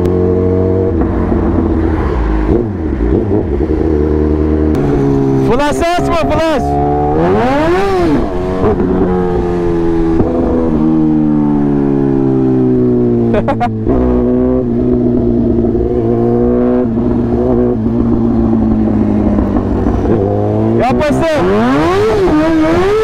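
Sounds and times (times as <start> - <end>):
motorcycle engine revving: 0.0 - 23.0.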